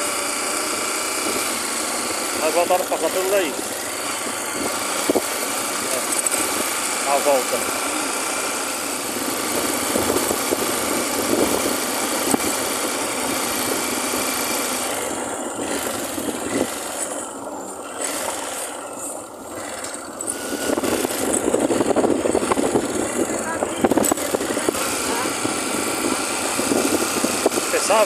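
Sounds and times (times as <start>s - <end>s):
motorcycle engine running: 0.0s - 28.0s
wind rushing over microphone: 9.0s - 12.6s, 20.4s - 28.0s.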